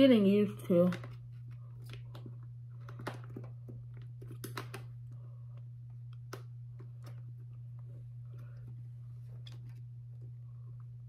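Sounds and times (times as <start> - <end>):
steady low hum: 0.0 - 11.0
plastic clicks and crackles: 1.8 - 4.9.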